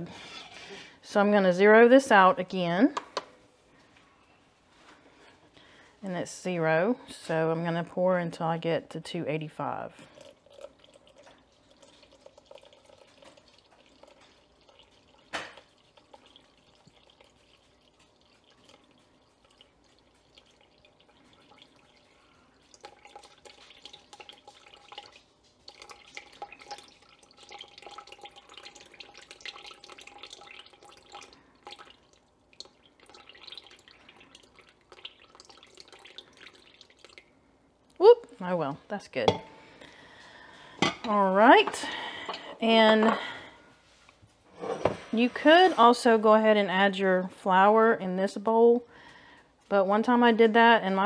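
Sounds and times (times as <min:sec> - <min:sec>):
water trickling into a glass bowl: 0:09.6 - 0:37.4.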